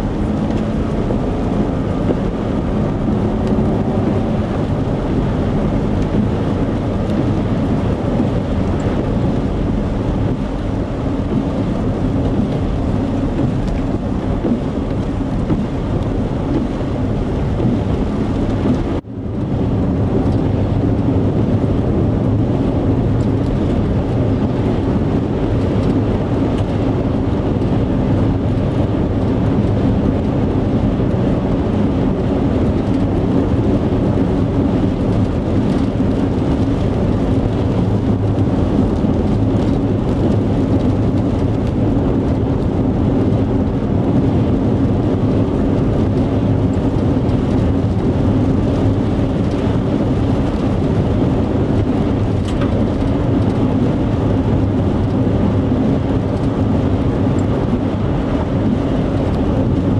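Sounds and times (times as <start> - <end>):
car cabin engine and road drone: 0.0 - 59.9.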